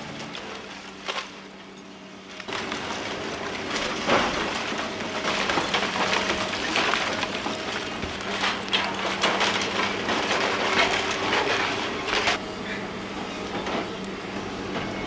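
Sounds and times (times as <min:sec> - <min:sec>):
excavator engine humming: 0:00.0 - 0:15.0
bricks and debris crashing: 0:02.5 - 0:12.4.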